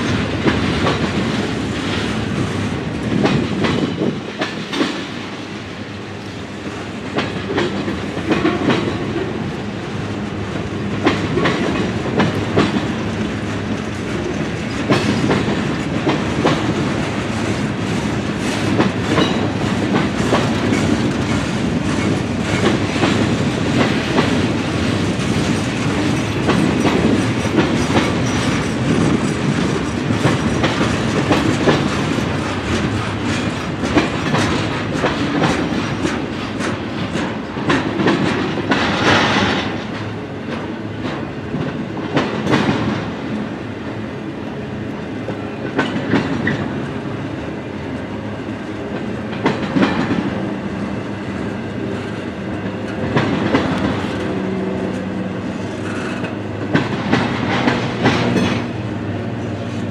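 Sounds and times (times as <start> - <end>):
wheels clacking over rail joints: 0.0 - 5.4, 10.6 - 43.5, 45.2 - 47.0, 48.9 - 50.5, 51.3 - 59.9
freight train rumbling past: 0.0 - 59.9.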